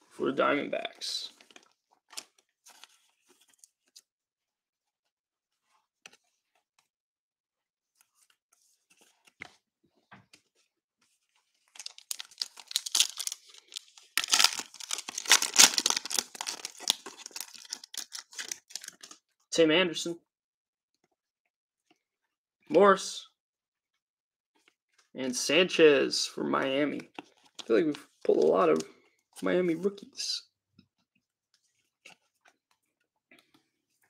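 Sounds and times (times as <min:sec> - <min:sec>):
plastic wrapper tearing and crinkling: 0:11.7 - 0:19.2.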